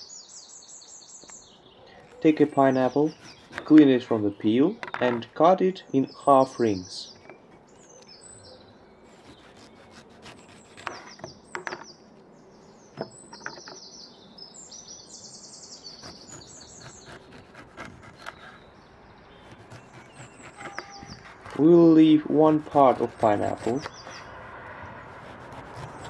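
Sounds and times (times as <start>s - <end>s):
small birds chirping: 0.0s - 26.0s
knife cutting on wooden board: 2.0s - 3.9s, 16.0s - 18.6s, 19.4s - 21.6s, 22.4s - 24.3s, 25.2s - 26.0s.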